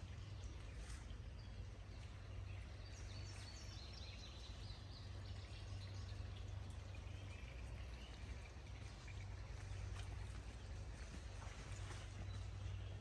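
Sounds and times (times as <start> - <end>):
bird chirping: 0.0 - 10.4
steady low rumble: 0.0 - 13.0.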